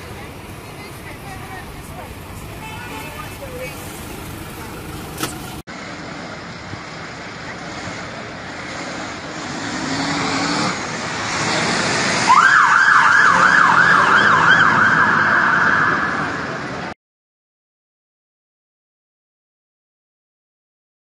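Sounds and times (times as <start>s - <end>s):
traffic rumble: 0.0s - 17.0s
fire engine siren yelping: 12.2s - 16.6s.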